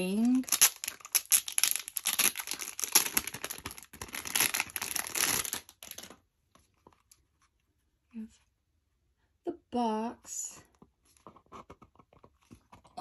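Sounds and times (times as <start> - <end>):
plastic wrapper crinkling: 0.0 - 6.2.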